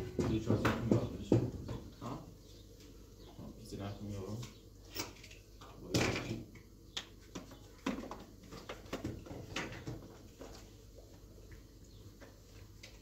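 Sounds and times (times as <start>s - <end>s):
objects knocking and clattering: 7.3s - 10.5s.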